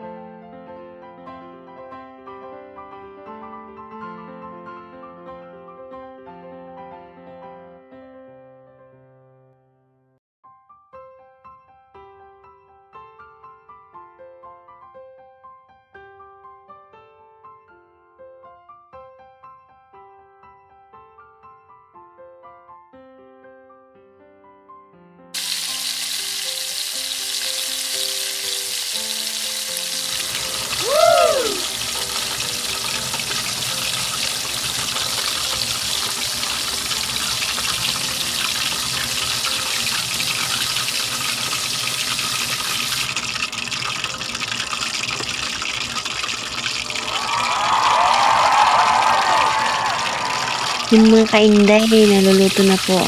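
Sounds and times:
soft piano music: 0.0 - 30.8
meat deep-frying in oil: 25.4 - 53.0
rising and falling tone: 47.0 - 50.9.

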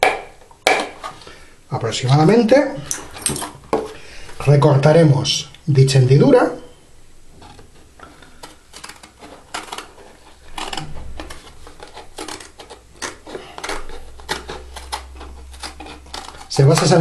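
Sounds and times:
scissors cutting carton: 8.4 - 17.0.

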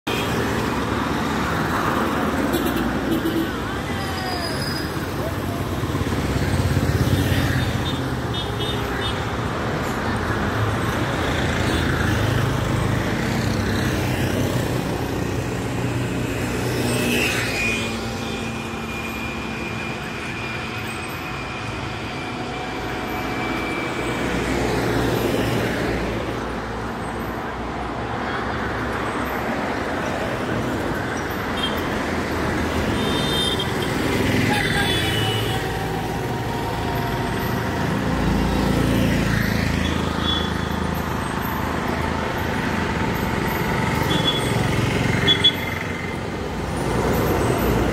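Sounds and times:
cars and trucks driving past: 0.1 - 47.9.

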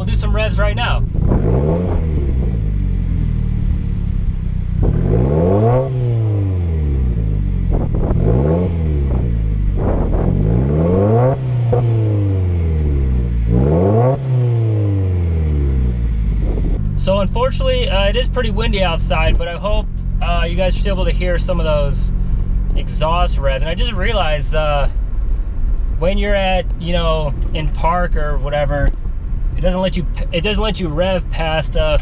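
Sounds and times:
car engine revving: 0.0 - 32.0
wind on microphone: 16.3 - 16.9.

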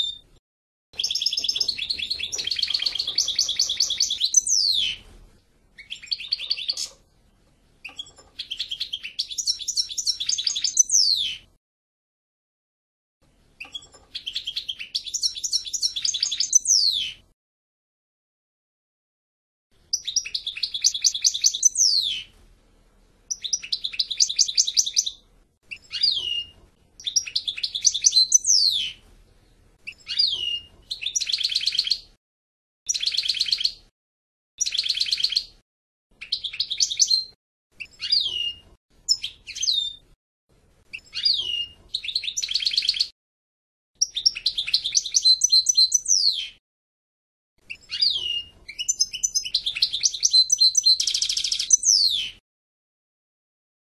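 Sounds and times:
goldfinch twittering song: 1.0 - 5.0, 7.8 - 11.5, 13.6 - 17.2, 19.9 - 22.3, 23.3 - 29.0, 29.9 - 32.1, 32.9 - 33.8, 34.6 - 35.5, 36.2 - 40.0, 40.9 - 43.1, 44.0 - 46.6, 47.7 - 52.4.

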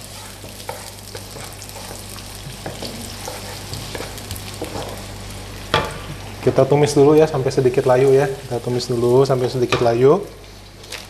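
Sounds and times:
wooden spatula scraping pan: 0.0 - 5.1
garlic and onion sizzling in oil: 0.0 - 11.0.

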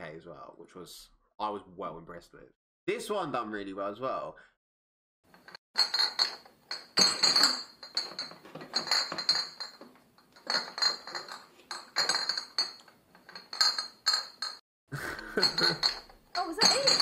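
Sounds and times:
glass bottles clinking: 5.3 - 17.0.

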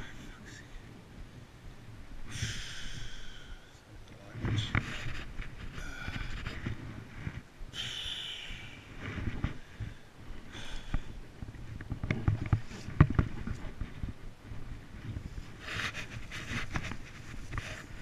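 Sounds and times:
camera handling rustling grass: 14.9 - 18.0.

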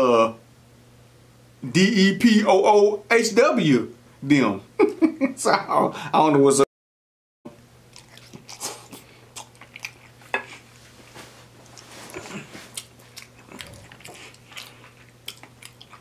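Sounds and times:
faint low hum: 7.5 - 16.0
man chewing: 7.8 - 16.0.

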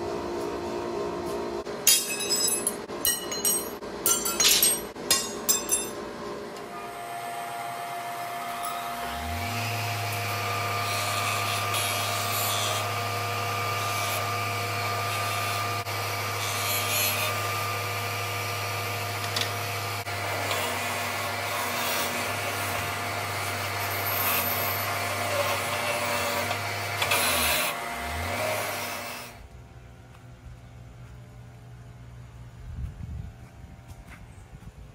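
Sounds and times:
steel rod grinding on wheel: 1.9 - 6.0, 20.3 - 27.8
bench grinder motor hum: 6.6 - 29.4.

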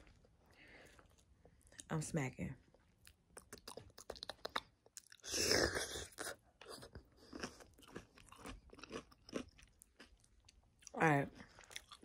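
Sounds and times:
crunching and chewing cucumber: 2.8 - 12.0
wet mouth smacking: 3.4 - 5.1.

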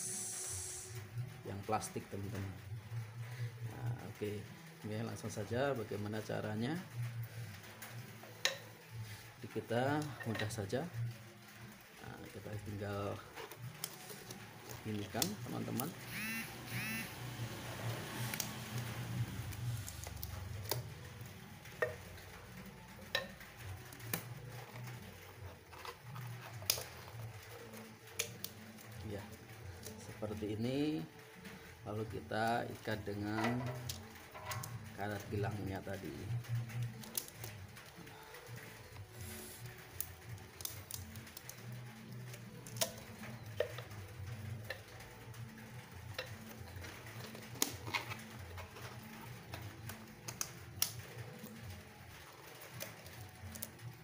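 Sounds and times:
small clicks and taps: 19.5 - 30.2, 33.4 - 54.0.

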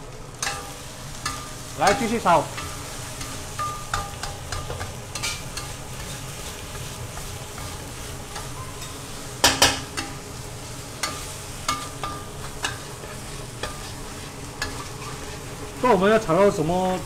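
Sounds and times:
chicken sizzling in a wok: 0.0 - 17.0
metal spatula scraping wok: 11.0 - 16.0.

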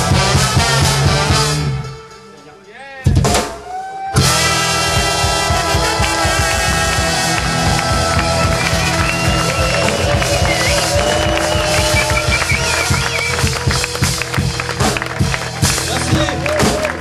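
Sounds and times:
rock band with brass playing: 0.0 - 17.0.

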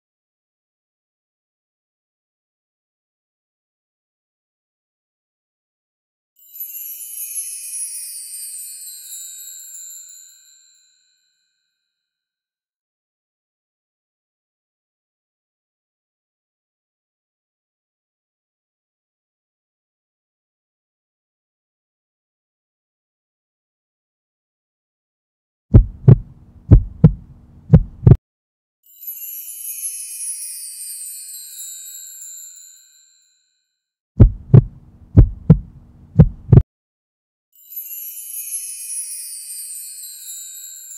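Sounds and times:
tinkling chime tones: 6.4 - 12.2, 28.8 - 33.9, 37.6 - 40.9
heartbeat thuds: 25.7 - 28.2, 34.2 - 36.6.

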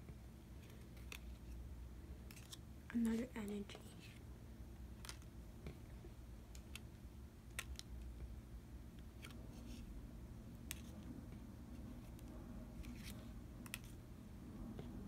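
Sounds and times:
cards clicking on tabletop: 5.0 - 5.3, 7.5 - 8.0, 12.8 - 14.0.

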